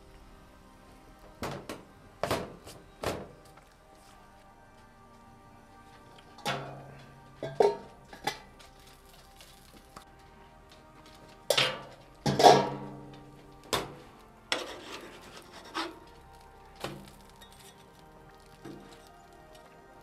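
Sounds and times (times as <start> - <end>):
background music: 0.0 - 20.0
metal dome set on griddle: 6.2 - 10.2, 11.0 - 19.8
metal spatula scraping griddle: 14.5 - 16.0.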